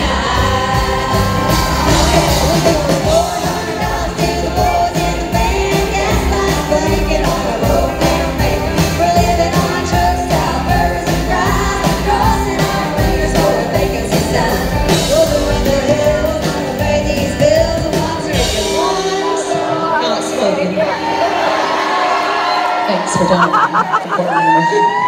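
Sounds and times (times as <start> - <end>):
drums keeping a steady beat: 0.0 - 19.4
women singing: 0.0 - 22.7
country band playing: 0.0 - 24.4.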